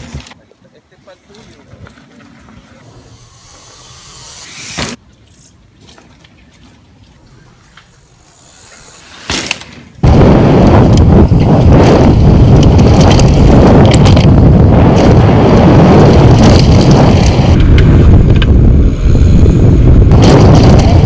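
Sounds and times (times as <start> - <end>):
bike tyres rumbling: 1.5 - 21.0
wind buffeting microphone: 10.0 - 21.0.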